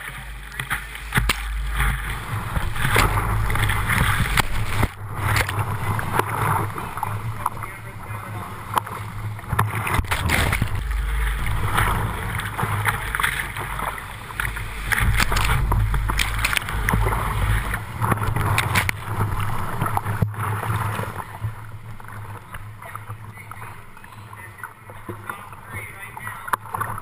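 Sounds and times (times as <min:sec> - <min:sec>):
low rumble of current: 0:00.0 - 0:27.0
paddle strokes splashing: 0:00.0 - 0:27.0
whitewater rapids rushing: 0:00.0 - 0:27.0.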